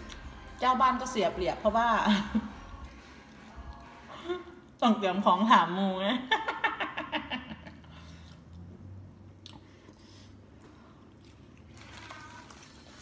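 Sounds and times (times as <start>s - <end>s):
woman chewing vegetables: 8.0s - 13.0s.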